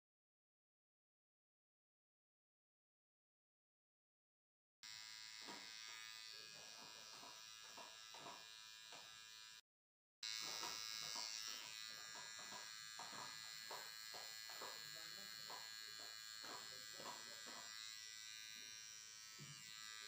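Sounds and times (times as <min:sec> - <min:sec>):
electric hair clipper buzzing: 0:04.8 - 0:09.6, 0:10.2 - 0:20.0.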